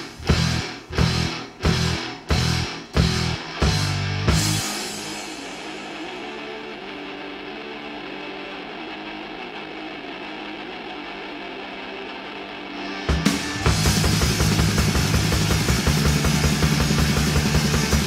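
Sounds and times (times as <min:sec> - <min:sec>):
metal band with loud drum hits: 0:00.0 - 0:06.4, 0:13.1 - 0:18.0
sustained electric guitar: 0:00.0 - 0:18.0.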